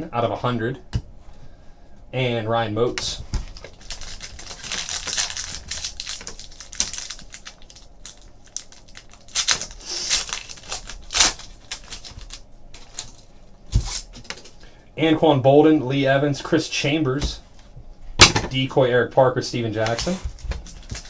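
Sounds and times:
foil wrapper crinkling and tearing: 3.5 - 14.4, 19.9 - 21.0.

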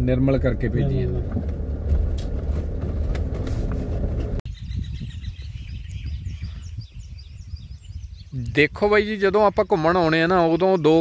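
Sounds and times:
car driving rumble: 0.0 - 4.4
birds chirping: 4.5 - 11.0.

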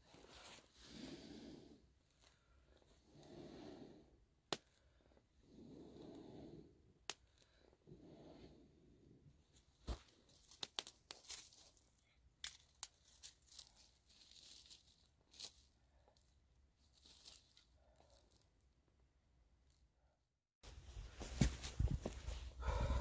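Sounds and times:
soft blowing breaths: 0.0 - 9.4, 20.7 - 23.0
campfire crackling and snapping: 10.5 - 11.6.

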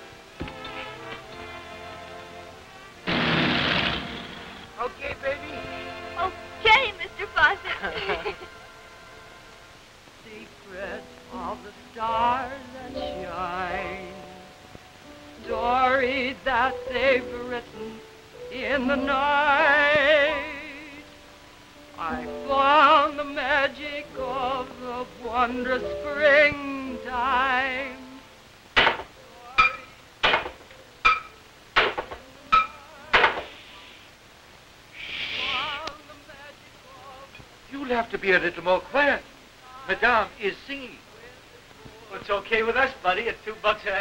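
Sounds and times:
woman singing opera: 10.4 - 14.5, 15.4 - 21.1, 22.0 - 28.2, 29.2 - 30.0, 32.2 - 33.5, 35.4 - 37.5.

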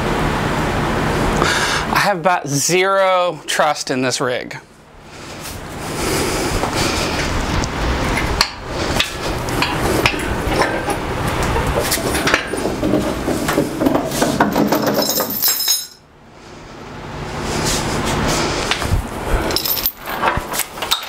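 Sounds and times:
wheels rolling on concrete: 6.6 - 15.5
chains and steel clanking: 14.0 - 16.0, 19.5 - 21.0.

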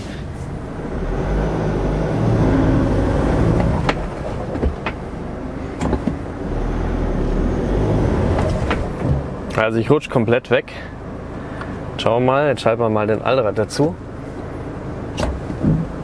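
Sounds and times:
diesel engine revving: 0.0 - 12.0.

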